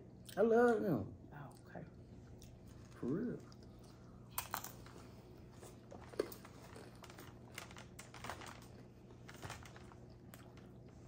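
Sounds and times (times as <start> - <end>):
chewing: 2.3 - 11.0.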